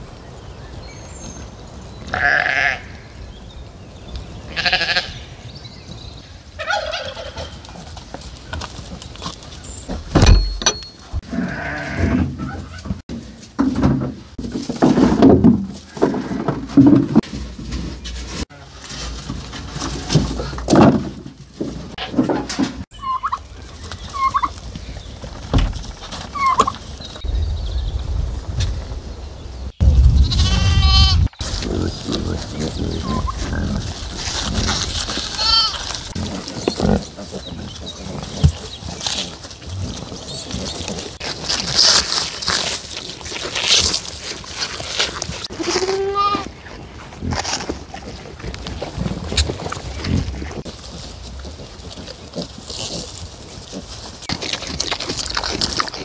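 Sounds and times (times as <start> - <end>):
farm animals calling: 1.3 - 3.3, 4.3 - 5.6, 6.3 - 13.0, 21.9 - 27.3, 30.0 - 56.0
sheep bleating: 2.1 - 2.9, 4.5 - 5.2, 11.2 - 12.2, 30.3 - 31.3, 35.3 - 36.0, 45.6 - 46.5.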